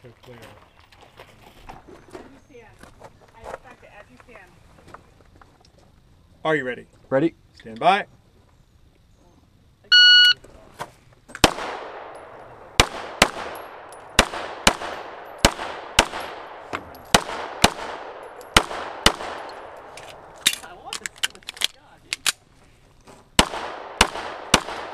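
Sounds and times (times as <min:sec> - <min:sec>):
shot timer beep: 0:09.9 - 0:10.4
pistol shots with echo: 0:11.4 - 0:20.3, 0:23.4 - 0:24.9.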